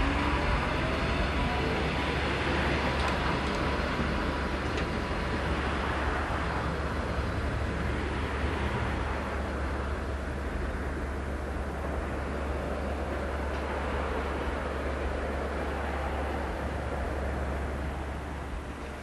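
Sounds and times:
tram running on track: 0:00.0 - 0:19.0.

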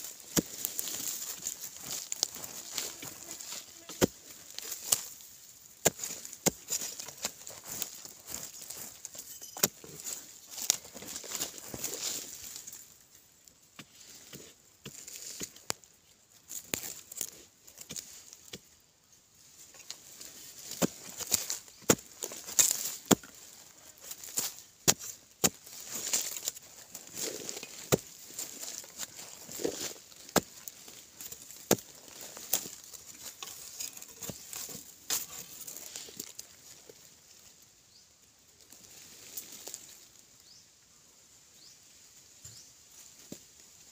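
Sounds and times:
dirt clods spilling: 0:00.0 - 0:13.2, 0:19.8 - 0:36.8
gritty scraping and falling earth: 0:00.0 - 0:18.8, 0:19.4 - 0:37.6, 0:38.6 - 0:40.6
digging tool striking soil: 0:00.1 - 0:12.7, 0:20.6 - 0:36.4.

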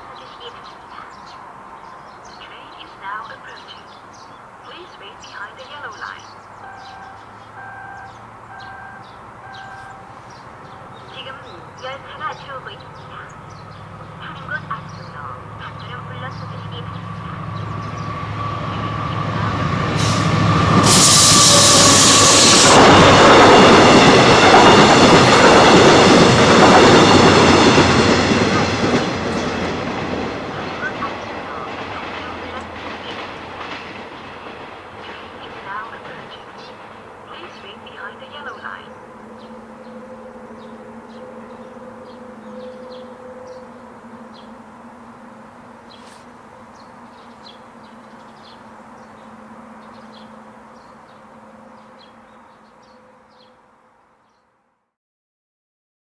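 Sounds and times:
small birds chirping: 0:00.0 - 0:18.2, 0:35.0 - 0:43.7, 0:45.9 - 0:53.6
train wheels rumbling on rails: 0:07.0 - 0:50.7.

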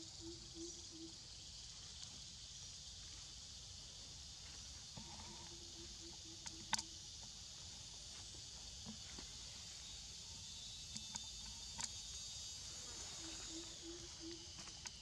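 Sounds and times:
insect chorus hissing: 0:00.0 - 0:15.0.

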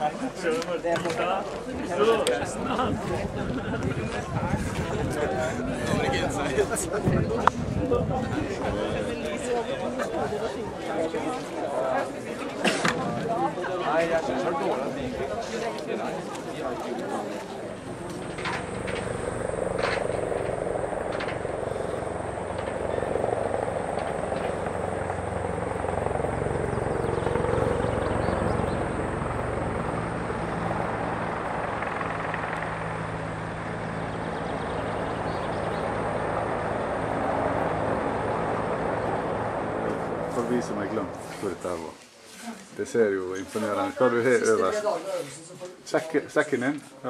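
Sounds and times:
steady mechanical drone: 0:17.2 - 0:41.8.

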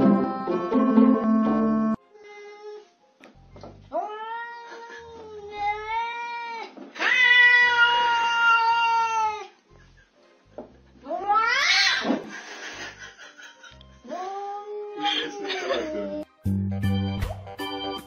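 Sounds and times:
cat yowling: 0:03.9 - 0:09.5, 0:11.0 - 0:12.1.

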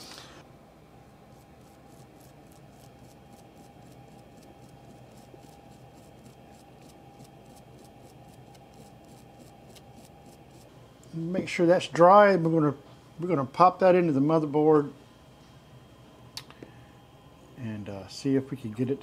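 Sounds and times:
toothbrush scratchy brushing: 0:01.3 - 0:10.7.

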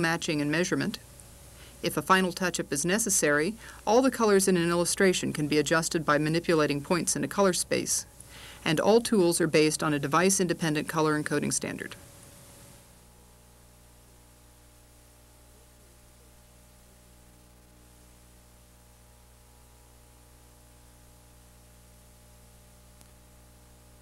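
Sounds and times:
faint electrical hum: 0:00.0 - 0:24.0
soft hiss: 0:00.0 - 0:24.0.

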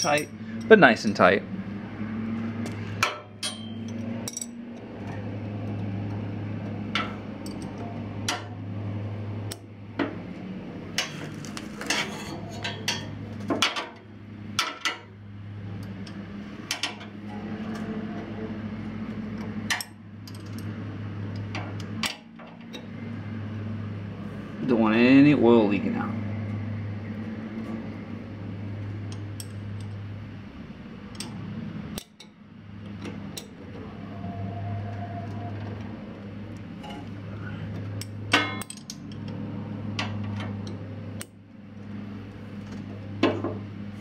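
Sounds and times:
metal wrenches clinking: 0:00.0 - 0:01.2, 0:03.0 - 0:04.6, 0:38.0 - 0:39.2
low hum: 0:14.0 - 0:44.0.

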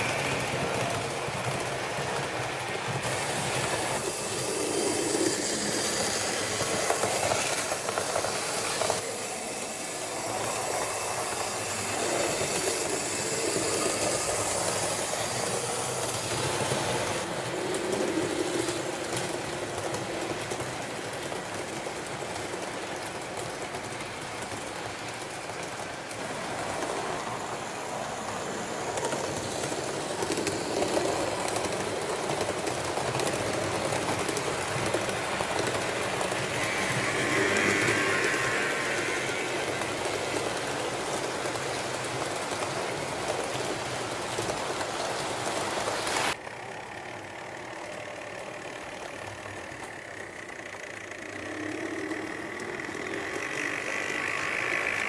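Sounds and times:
train rolling on track: 0:00.0 - 0:55.0.

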